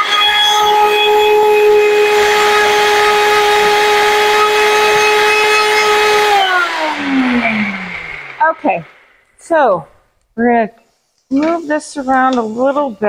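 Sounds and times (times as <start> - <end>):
blender motor whine: 0.0 - 9.5.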